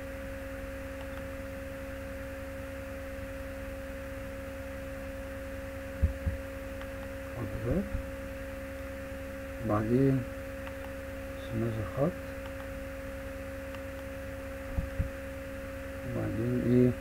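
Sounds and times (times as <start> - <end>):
electrical hum: 0.0 - 17.0
low thumps: 6.0 - 6.4, 14.7 - 15.2.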